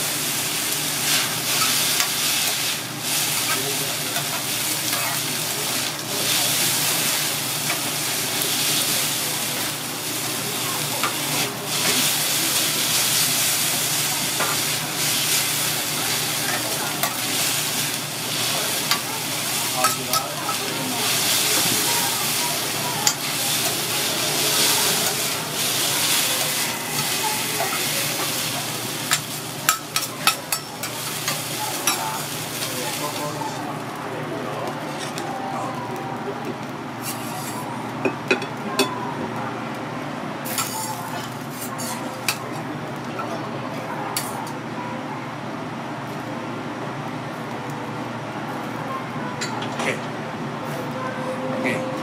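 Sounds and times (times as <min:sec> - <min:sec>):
noodles sizzling on a griddle: 0:00.0 - 0:39.4, 0:40.4 - 0:44.7
spatulas scraping on a griddle: 0:00.9 - 0:09.8, 0:10.6 - 0:33.6, 0:37.0 - 0:37.7, 0:40.4 - 0:42.4.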